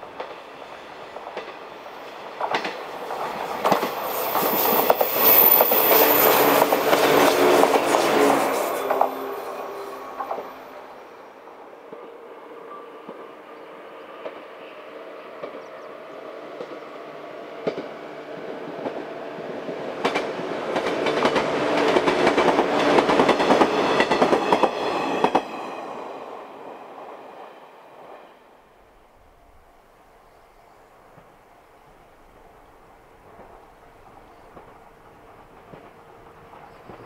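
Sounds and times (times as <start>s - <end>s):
electric train passing: 0.0s - 37.0s
wheels clacking over rail joints: 1.2s - 10.6s, 20.0s - 25.5s.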